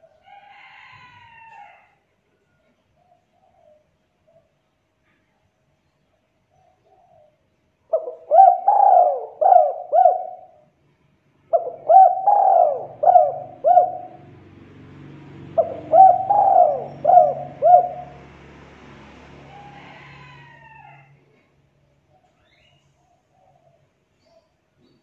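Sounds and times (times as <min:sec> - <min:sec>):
dove cooing: 0:06.6 - 0:10.6, 0:11.5 - 0:14.6, 0:15.3 - 0:18.4.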